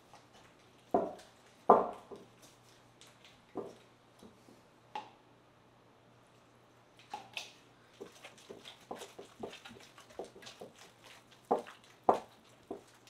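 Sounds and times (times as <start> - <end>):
wet dough squelching: 7.0 - 13.0.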